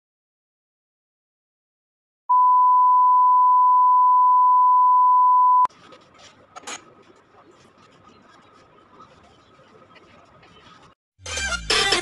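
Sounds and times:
test tone beep: 2.3s - 5.7s.

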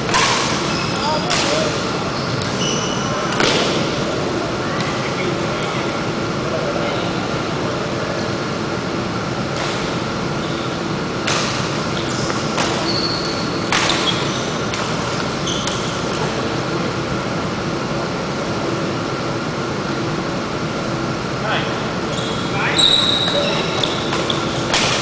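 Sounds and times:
rackets striking shuttlecock: 0.0s - 0.7s, 3.3s - 3.8s, 11.2s - 12.9s, 13.7s - 16.4s, 23.3s - 25.0s
ventilation fan hum: 0.0s - 25.0s
shoes squeaking on court: 0.6s - 3.4s, 11.9s - 16.2s, 22.0s - 24.8s.

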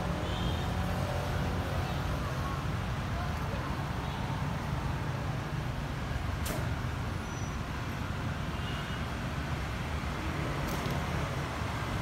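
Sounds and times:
sharp click: 6.4s - 6.7s.

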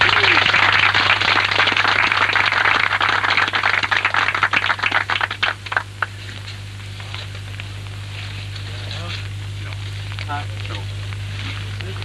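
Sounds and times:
small group clapping: 0.0s - 6.2s.

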